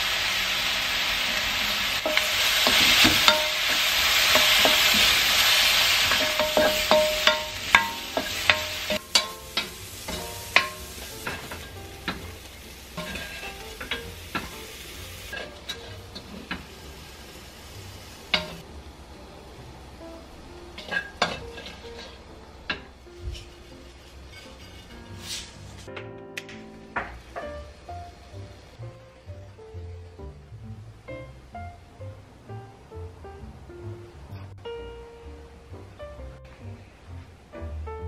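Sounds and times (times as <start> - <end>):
food sizzling in a wok: 0.0 - 25.9, 27.0 - 30.4
spatula scraping a pan: 2.0 - 16.6, 20.8 - 22.2, 23.2 - 25.9.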